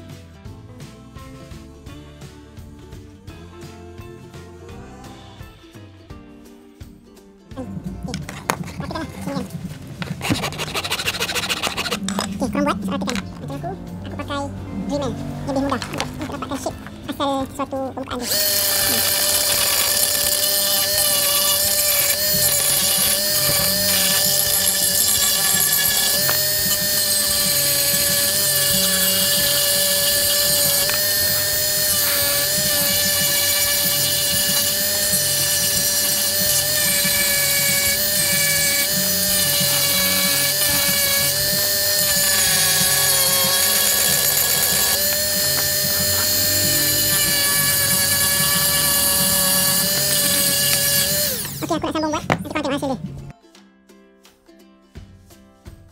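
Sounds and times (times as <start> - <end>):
rotary tool sanding whine: 7.9 - 17.5, 18.2 - 51.8.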